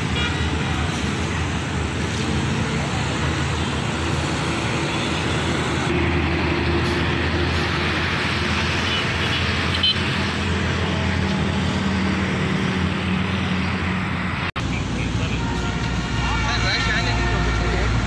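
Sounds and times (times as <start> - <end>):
road traffic: 0.0 - 18.0.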